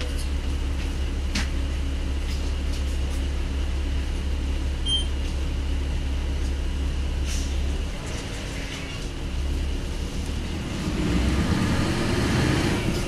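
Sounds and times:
bus diesel engine low rumble: 0.0 - 13.0
short high beep: 4.9 - 5.1.

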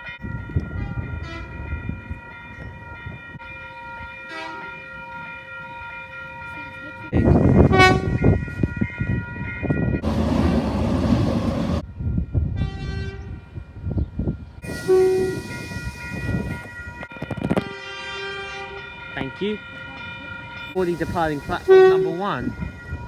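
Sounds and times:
train horn blasts: 0.8 - 1.6, 4.3 - 4.8, 7.6 - 8.4, 12.6 - 13.3, 14.7 - 15.5, 17.6 - 18.8, 21.6 - 22.2.

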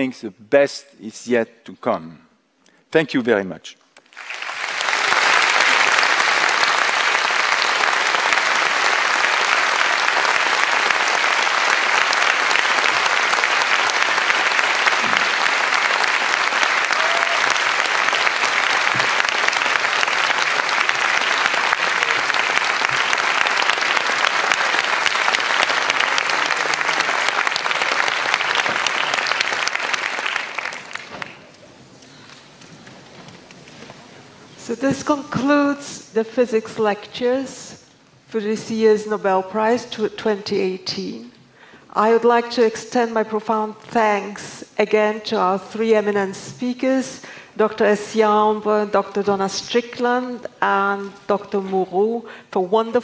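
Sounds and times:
large audience applauding: 4.0 - 34.4.

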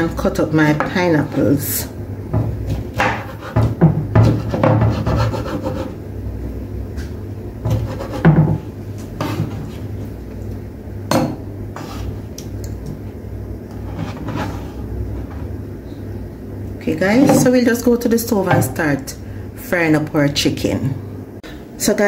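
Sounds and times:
knife cutting on chopping board: 2.7 - 5.9, 7.7 - 8.4.

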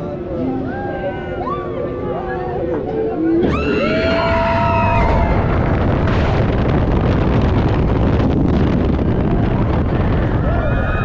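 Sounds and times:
roller coaster train rumble: 1.9 - 11.0
wind buffeting microphone: 3.5 - 11.0.

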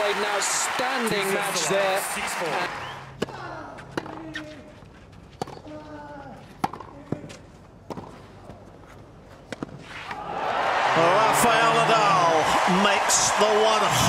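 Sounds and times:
racket striking tennis ball: 5.4 - 5.6, 6.6 - 7.2, 7.9 - 8.2
tennis ball bouncing on clay: 5.4 - 5.7, 6.6 - 8.2.

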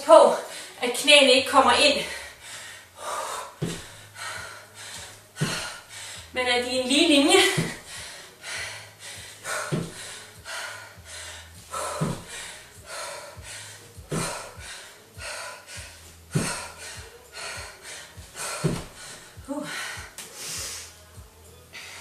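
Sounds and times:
woman panting: 0.3 - 0.8, 2.0 - 21.0
trainers thudding on floor: 7.3 - 7.8, 16.4 - 16.6, 18.6 - 19.0.

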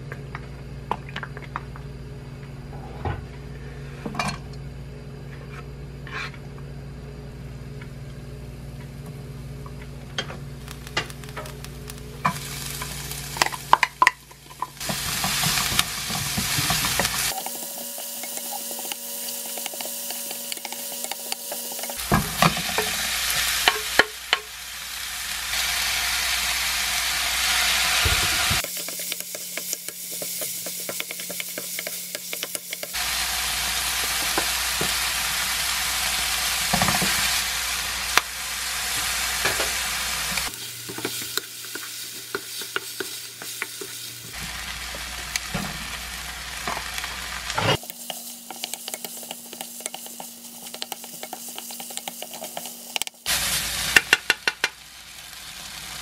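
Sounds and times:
food sizzling in a frying pan: 9.4 - 56.0
spatula scraping a pan: 14.5 - 23.0, 47.6 - 53.1.

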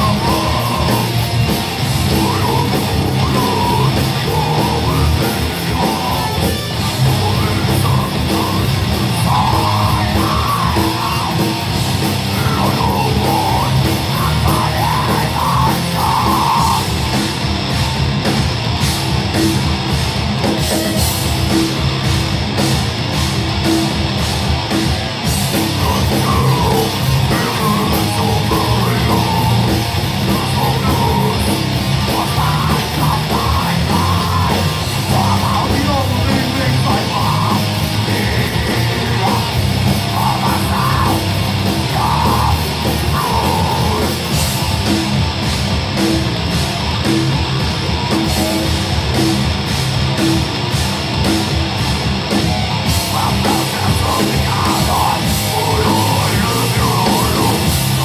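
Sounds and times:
harsh shouted vocals: 0.0 - 17.4, 25.4 - 44.7, 52.5 - 58.0
distorted electric guitars: 0.0 - 58.0
drums: 0.0 - 58.0.

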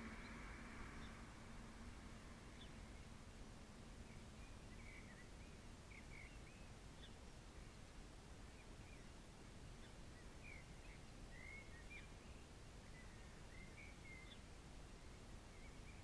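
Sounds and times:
low steady background hiss: 0.0 - 16.0
faint bird chirps: 3.9 - 16.0.

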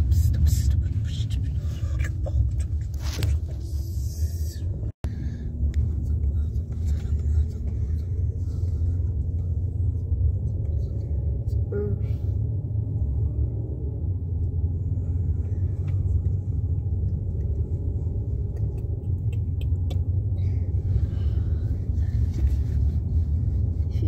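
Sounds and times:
car road and wind noise: 0.0 - 24.0.

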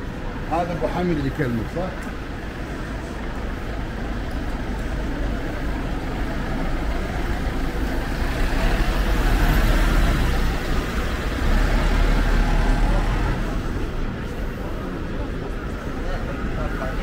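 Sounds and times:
vehicles passing with tyre hiss: 0.0 - 17.0.

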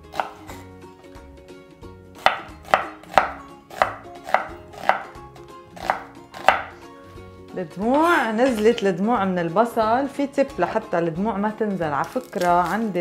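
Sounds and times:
knife chopping on wooden board: 0.0 - 0.6, 2.2 - 5.2, 5.8 - 6.8.

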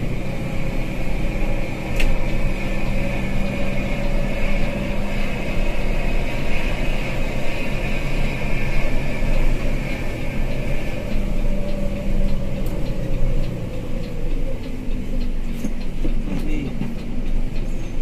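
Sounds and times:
bus engine hum: 0.0 - 18.0
road noise: 0.0 - 18.0
light ticks: 9.3 - 18.0.

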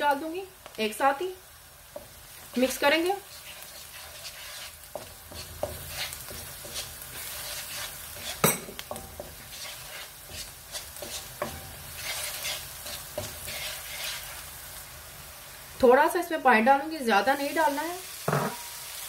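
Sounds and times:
vegetables sizzling in oil: 0.0 - 19.0
wooden spatula scraping pan: 2.0 - 14.5.

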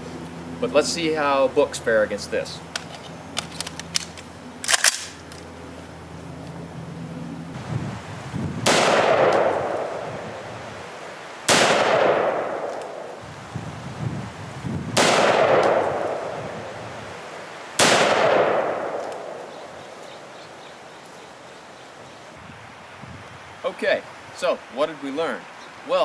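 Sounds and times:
rifle shots with echo: 8.6 - 10.2, 11.5 - 13.2, 15.0 - 16.5, 17.8 - 19.5.

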